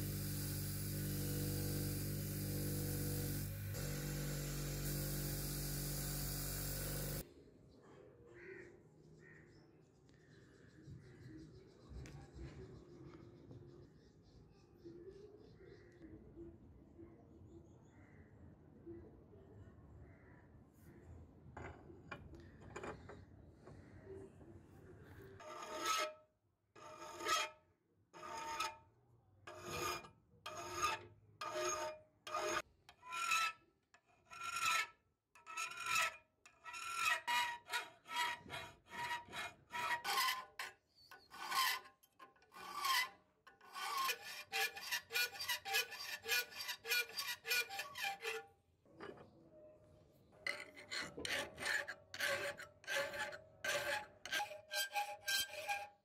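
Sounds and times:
file rasping on steel: 0.0 - 7.2, 25.4 - 26.2, 26.8 - 27.6, 28.2 - 28.8, 29.5 - 49.2, 50.5 - 56.0.

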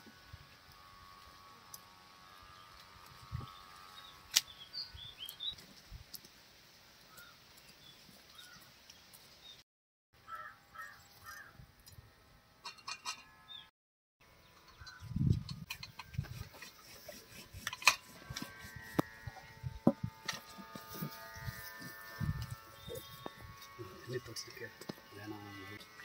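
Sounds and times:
crow cawing: 10.2 - 11.5.

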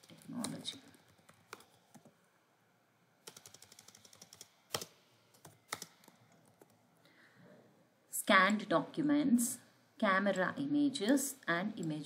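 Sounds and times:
computer keyboard typing: 0.0 - 2.1, 3.2 - 6.8.

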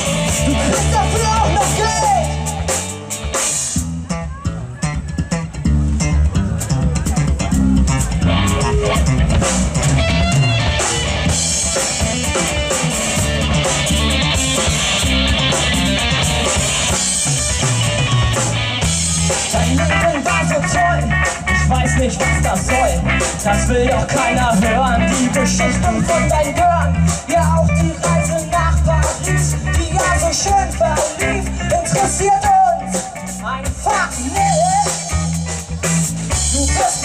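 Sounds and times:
drum kit: 0.0 - 37.0
electric bass guitar: 0.0 - 37.0.

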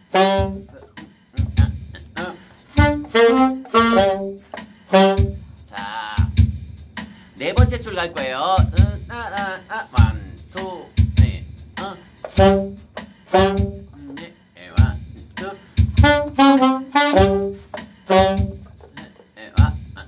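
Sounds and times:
alto saxophones playing: 0.0 - 0.9, 1.6 - 5.4, 12.3 - 14.1, 16.0 - 18.9
swing drum backing track: 0.0 - 20.0
man singing: 0.4 - 4.2, 7.4 - 12.7, 13.4 - 16.2, 18.8 - 20.0.

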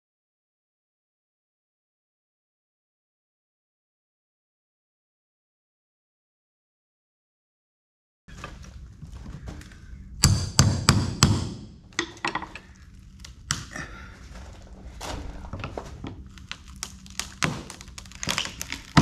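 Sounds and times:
hammer striking steel pry bar: 10.2 - 12.6
wooden plank cracking and scraping: 12.7 - 19.0.

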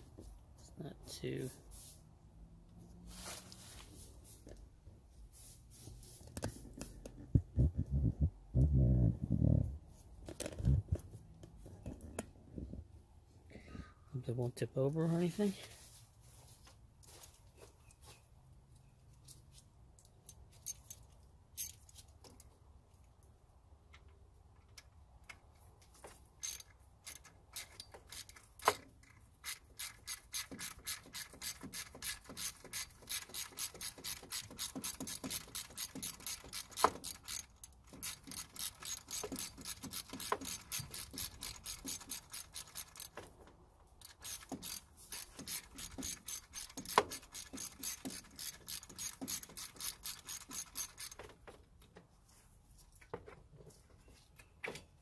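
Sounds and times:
socket ratchet clicking: 26.4 - 43.2, 44.0 - 51.2.

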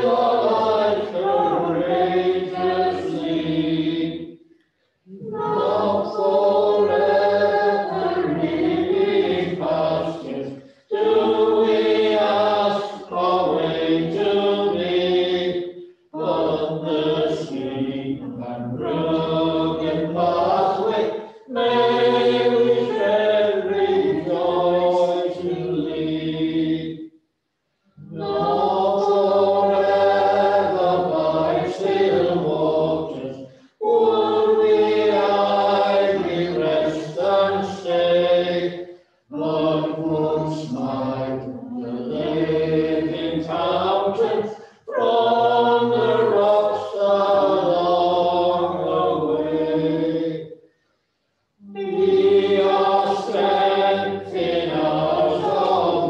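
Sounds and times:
choir singing a hymn: 0.0 - 4.4, 5.1 - 27.1, 28.0 - 50.6, 51.6 - 56.0.

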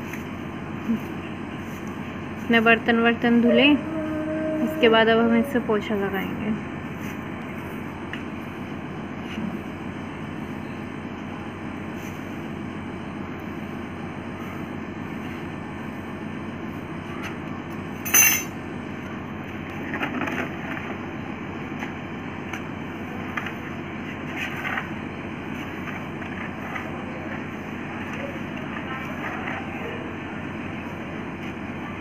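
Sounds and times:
broom sweeping concrete floor: 6.9 - 7.8, 11.8 - 12.4, 23.2 - 30.1.

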